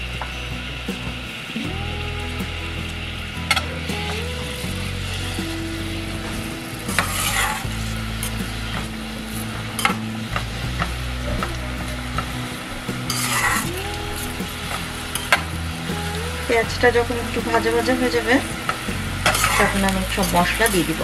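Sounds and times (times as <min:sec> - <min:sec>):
onions sizzling in oil: 0:00.1 - 0:21.0
metal spatula scraping pan: 0:19.3 - 0:20.6.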